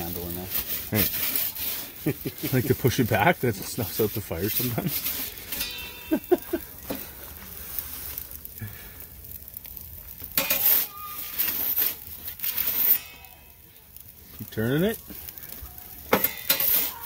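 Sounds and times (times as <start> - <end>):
faint steady hiss: 0.0 - 17.0
metal peel scraping stone: 0.4 - 3.0, 3.6 - 6.3, 10.3 - 13.5, 16.1 - 17.0.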